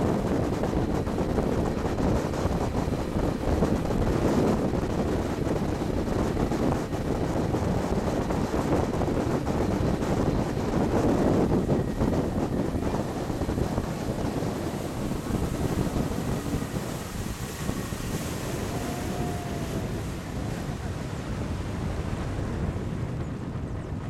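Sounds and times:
boat motor: 0.0s - 24.0s
wind buffeting microphone: 0.0s - 24.0s
water rushing: 10.1s - 22.5s.

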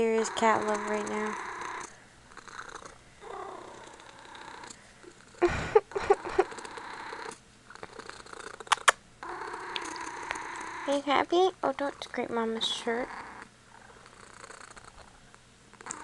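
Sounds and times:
kitten purring: 0.0s - 16.0s.

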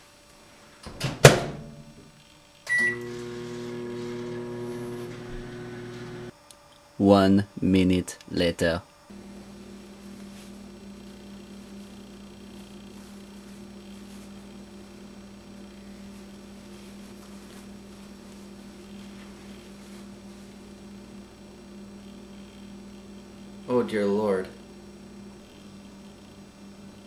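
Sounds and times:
electrical hum: 0.0s - 27.0s
paper towel crinkling: 9.8s - 14.9s, 15.8s - 20.7s.

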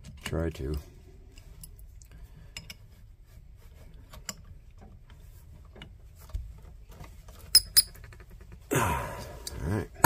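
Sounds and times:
light metallic clicks of wrenches: 0.0s - 2.9s.

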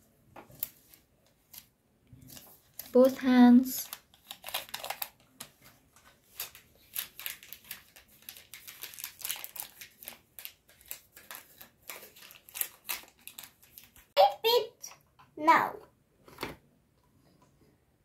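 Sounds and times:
wrapping crinkling: 0.5s - 14.2s.

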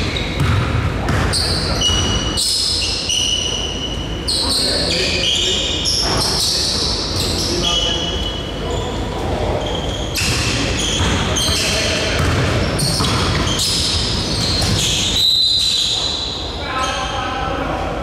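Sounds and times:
basketball bouncing on court: 0.0s - 2.3s, 10.2s - 15.2s
sneakers squeaking: 0.0s - 17.4s.

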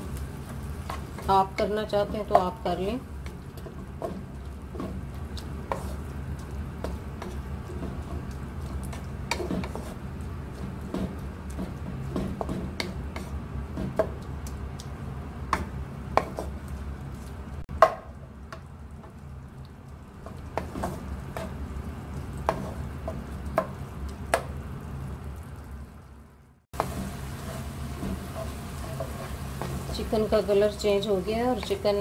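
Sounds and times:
spatula scraping in wok: 3.3s - 6.1s, 8.8s - 13.9s, 26.8s - 32.0s.

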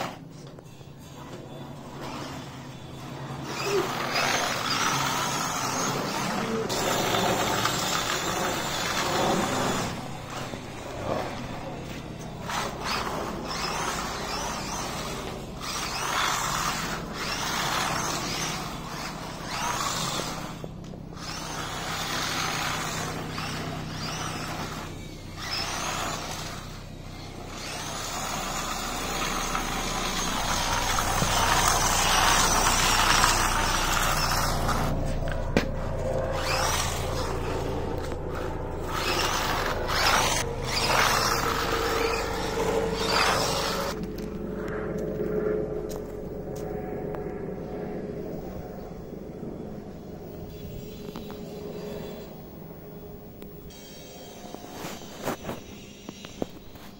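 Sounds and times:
rc car motor whining: 0.0s - 44.3s, 49.8s - 56.9s
tyres rushing on paving: 1.2s - 44.3s.

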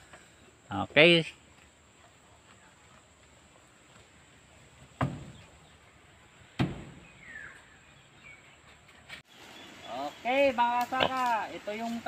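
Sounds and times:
knocks on wooden slats: 5.0s - 5.4s, 6.6s - 7.0s.

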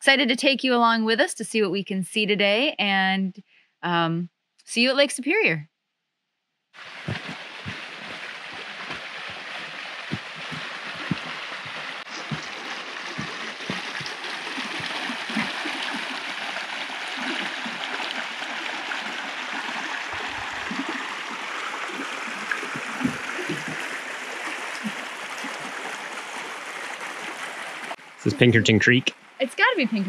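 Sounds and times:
creek rushing over rocks: 6.8s - 28.8s
footsteps on trail: 7.0s - 15.5s.

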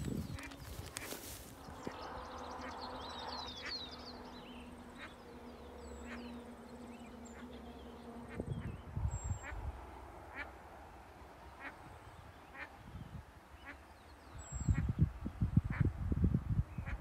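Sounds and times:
bird chirps: 0.0s - 9.6s.

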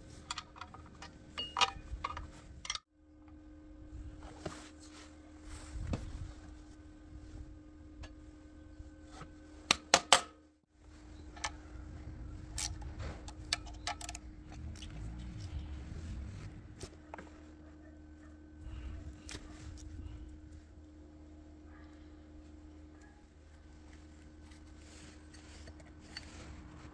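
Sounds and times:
metal clicks of hand tools: 12.6s - 15.5s.

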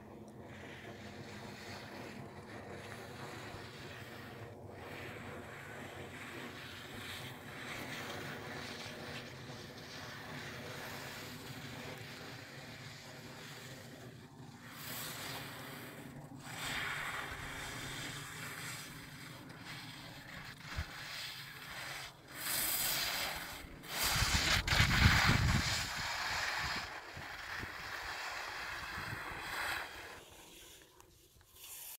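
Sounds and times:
wind buffeting microphone: 23.8s - 28.1s.

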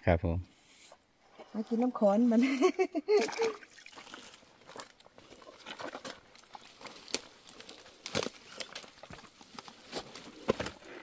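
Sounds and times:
boots crunching dry leaves: 4.0s - 10.8s.

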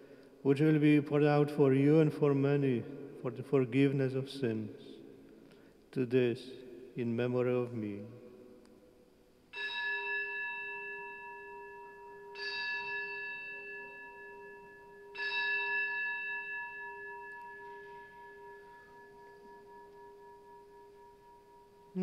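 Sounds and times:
altar bell ringing: 9.5s - 22.0s.

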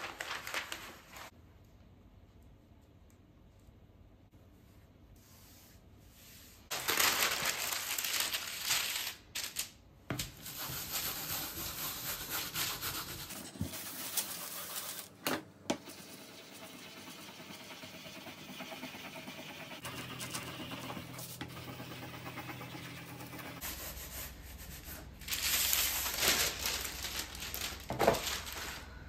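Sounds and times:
rubbing on paper: 10.4s - 15.2s.

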